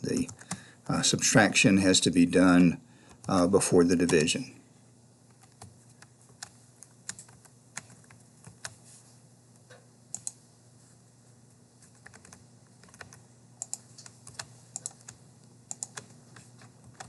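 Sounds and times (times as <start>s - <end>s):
computer keys and mouse clicking: 0.2s - 0.6s, 5.3s - 8.8s, 9.6s - 10.4s, 11.9s - 17.0s.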